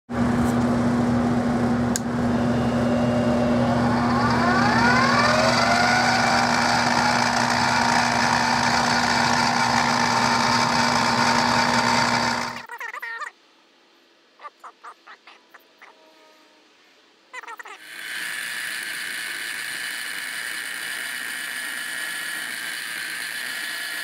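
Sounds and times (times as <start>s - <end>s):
machine whine rising in pitch: 1.0s - 12.7s
electric motor humming: 1.9s - 12.7s, 17.8s - 24.0s.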